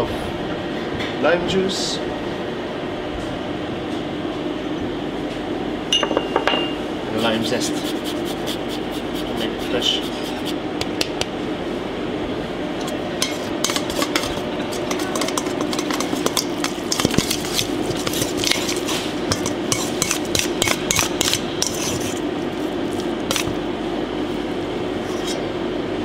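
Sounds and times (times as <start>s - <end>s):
metal spoon scraping steel bowl: 12.8s - 22.2s, 25.0s - 25.5s.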